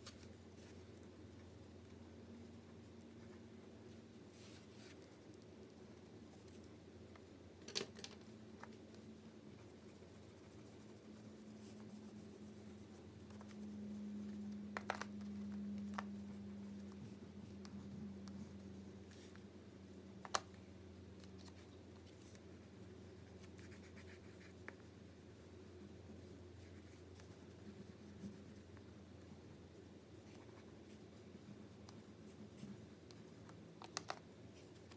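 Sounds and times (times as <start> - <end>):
steady low hum: 0.0 - 34.9
scratching on paper: 8.2 - 34.9.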